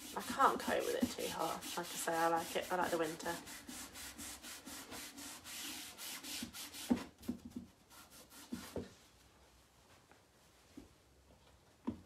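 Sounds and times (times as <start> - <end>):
cloth rubbing on wood: 0.0 - 10.8.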